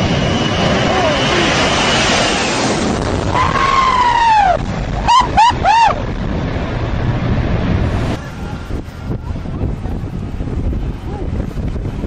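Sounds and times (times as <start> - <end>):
jet engine roar: 0.0 - 12.0
wind buffeting microphone: 0.0 - 12.0
person yelling and whooping: 3.6 - 6.0.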